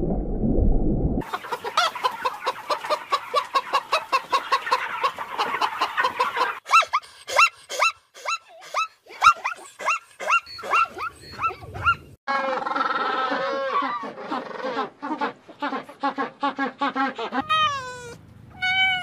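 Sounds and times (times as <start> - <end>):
hens clucking: 1.2 - 7.9.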